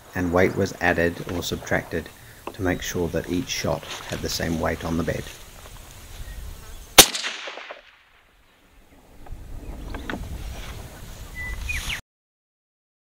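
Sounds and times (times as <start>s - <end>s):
suppressed rifle shot: 7.0s - 8.1s.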